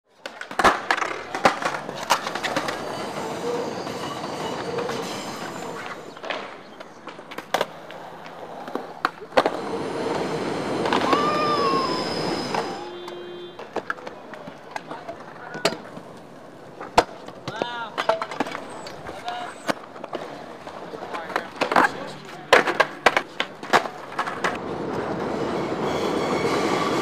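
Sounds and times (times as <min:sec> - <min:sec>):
skateboard clacking on ground: 0:00.1 - 0:03.6, 0:04.5 - 0:10.2, 0:12.5 - 0:25.2
skateboard wheels rolling on concrete: 0:00.1 - 0:27.0
train wheel squeal: 0:02.2 - 0:06.2, 0:09.6 - 0:13.6, 0:25.2 - 0:27.0
elevated train rumbling: 0:02.4 - 0:06.2, 0:09.5 - 0:13.3, 0:24.6 - 0:27.0.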